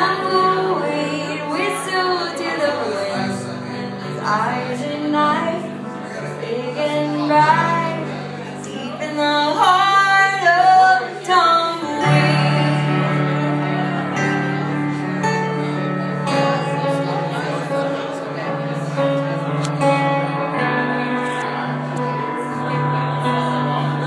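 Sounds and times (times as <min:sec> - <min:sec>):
woman singing: 0:00.0 - 0:14.4
acoustic guitar: 0:00.0 - 0:24.0
keyboard chords: 0:00.0 - 0:24.0.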